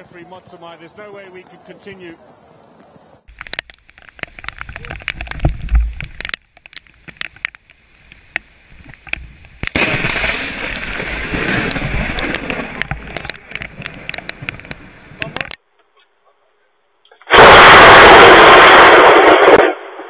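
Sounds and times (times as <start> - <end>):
lightning crack: 9.6 - 15.5, 17.3 - 20.0
loud crackling thunder: 9.6 - 15.5, 17.3 - 20.0.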